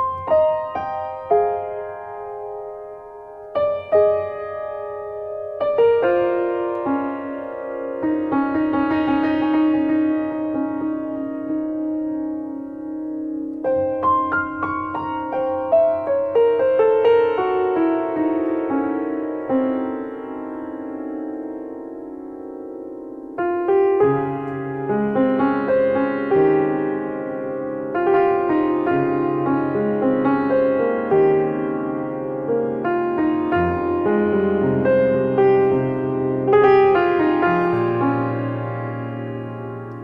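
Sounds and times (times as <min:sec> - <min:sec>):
slow piano music: 0:00.0 - 0:40.0.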